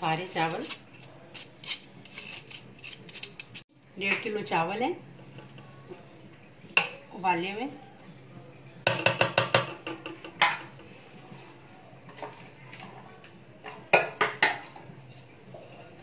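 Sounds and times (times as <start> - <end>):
metal spoon scraping metal pot: 0.2 - 3.6.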